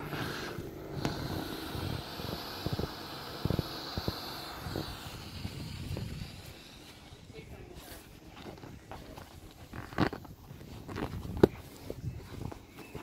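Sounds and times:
air hissing out of valve: 0.0 - 8.0.

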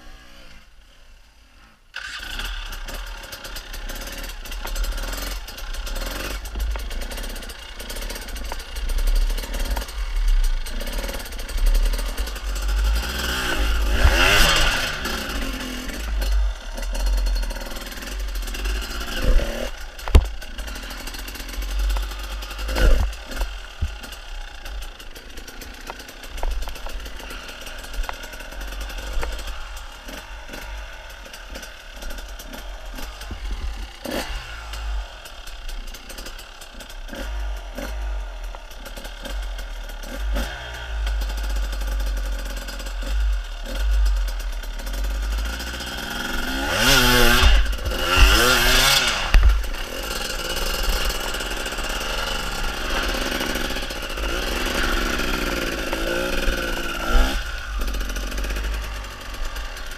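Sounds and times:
dirt bike engine revving: 1.9 - 59.9
bike knocking on rocks: 20.0 - 20.4.

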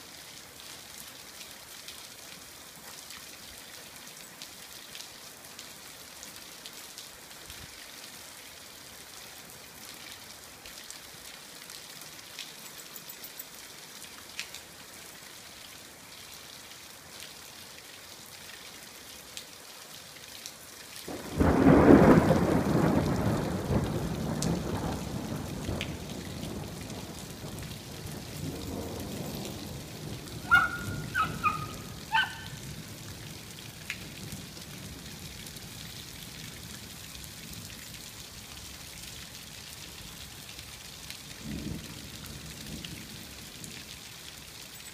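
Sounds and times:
rain patter: 0.0 - 44.9
drain pipe water splashing on concrete: 20.8 - 44.0
thunder clap: 21.1 - 31.6.

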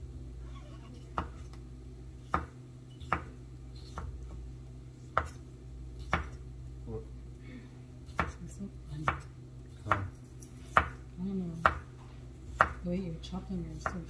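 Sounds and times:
knife chopping on cutting board: 1.1 - 1.6, 2.2 - 4.4, 5.1 - 5.4, 6.0 - 6.4, 8.1 - 8.4, 9.0 - 11.9, 12.5 - 12.8, 13.7 - 14.0.

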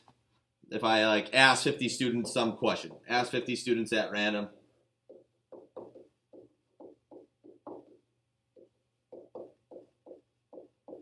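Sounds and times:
stylus tapping on a tablet: 5.0 - 11.0.

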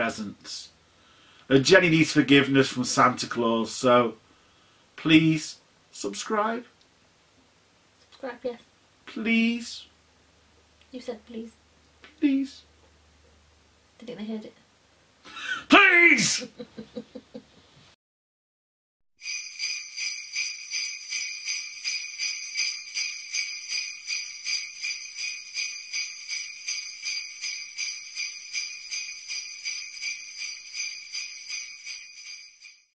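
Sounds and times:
jingle bells shaken: 19.2 - 33.0.

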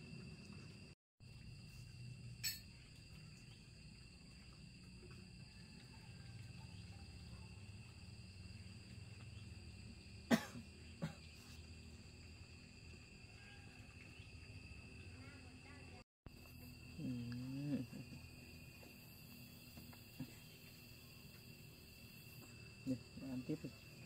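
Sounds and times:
person coughing: 10.3 - 11.3.

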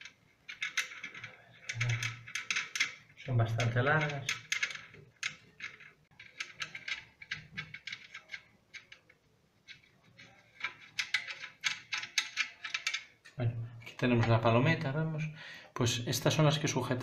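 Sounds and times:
small metal clicks and ticks: 0.0 - 13.4.

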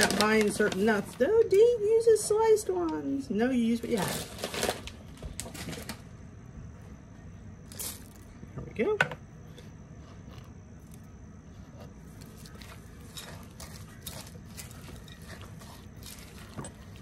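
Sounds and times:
spatula stirring oats in bowl: 11.7 - 17.0.

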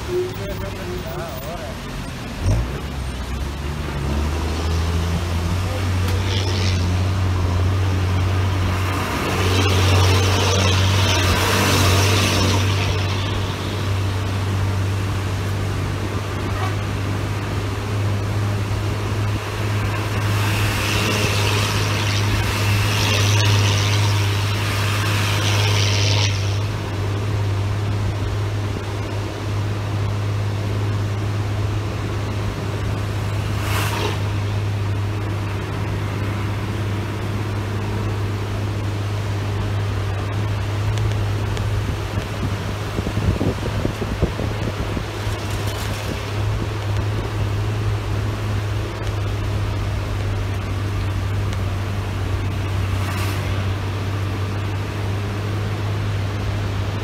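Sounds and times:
vehicle engine droning: 0.0 - 57.0
brief swish: 33.5 - 34.6.

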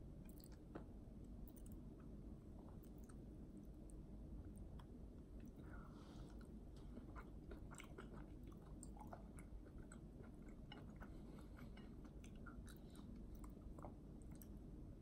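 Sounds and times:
chewing crunchy vegetable: 6.3 - 14.6.

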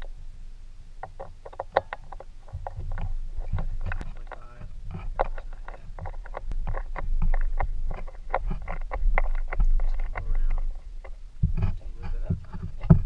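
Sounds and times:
small metal clicks and taps: 1.0 - 13.0
low rumble: 2.1 - 13.0.

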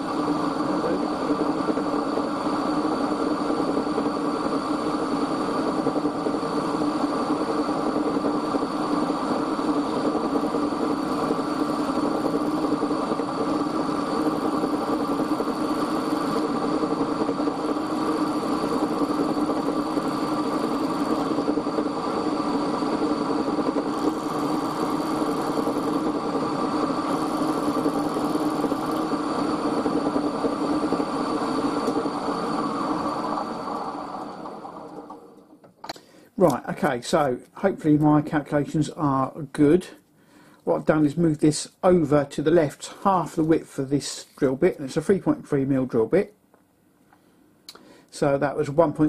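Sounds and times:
milling machine hum: 0.0 - 37.3
end mill high whine: 0.0 - 40.0.

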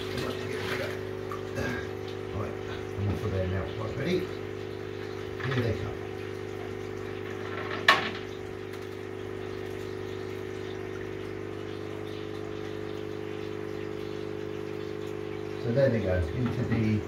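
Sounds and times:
aquarium filter pump hum: 0.0 - 17.0
water splashing: 0.0 - 17.0.

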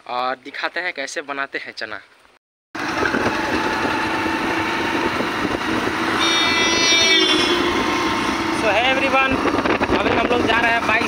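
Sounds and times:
motorcycle engine running: 2.8 - 11.0
wind and road noise: 2.8 - 11.0
high-pitched tone: 6.1 - 8.8.

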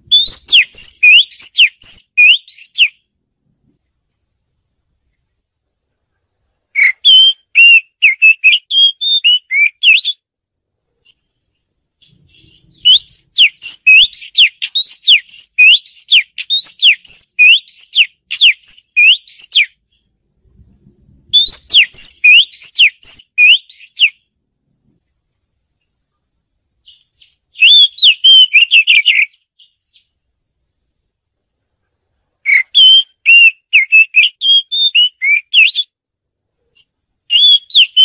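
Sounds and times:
bird singing whistled notes: 0.0 - 3.1, 6.7 - 10.3, 11.0 - 20.2, 21.3 - 24.4, 26.8 - 30.9, 32.4 - 36.0, 36.8 - 38.0.

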